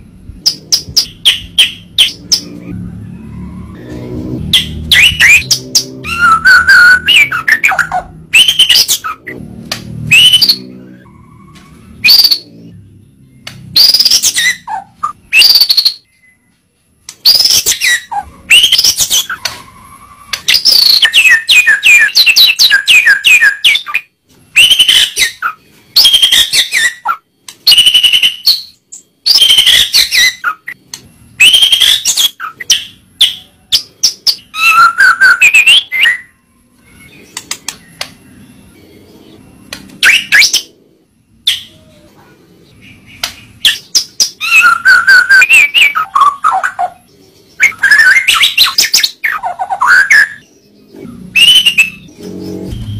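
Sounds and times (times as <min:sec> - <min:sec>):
bird singing whistled phrases: 0:04.6 - 0:09.4, 0:13.8 - 0:16.4, 0:34.3 - 0:36.3, 0:43.2 - 0:46.9, 0:47.6 - 0:50.4, 0:51.4 - 0:52.1.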